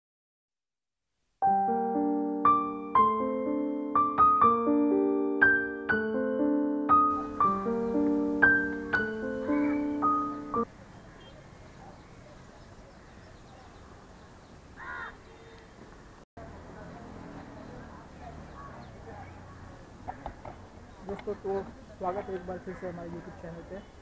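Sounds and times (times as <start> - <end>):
piano music with chords: 1.4 - 10.7.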